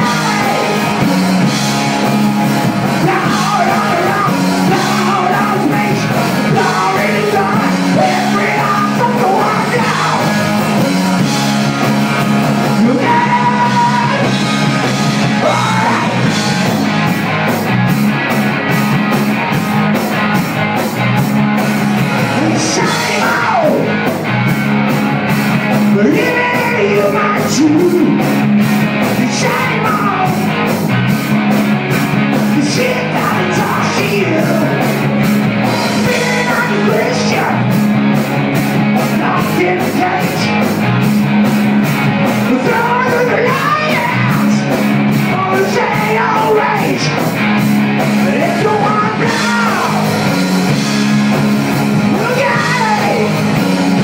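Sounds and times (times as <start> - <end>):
person singing: 0.0 - 1.9, 2.8 - 11.4, 12.6 - 16.7, 22.2 - 24.1, 25.9 - 28.3, 29.1 - 30.7, 32.5 - 34.9, 35.8 - 37.8, 39.0 - 40.7, 42.4 - 47.3, 48.2 - 50.9, 52.1 - 54.0
live rock band playing: 0.0 - 54.0.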